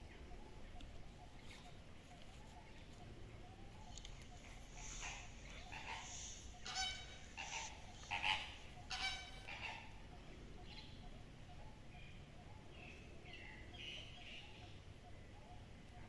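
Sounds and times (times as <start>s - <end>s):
birds calling: 0.0s - 16.0s
faint background noise: 0.0s - 16.0s.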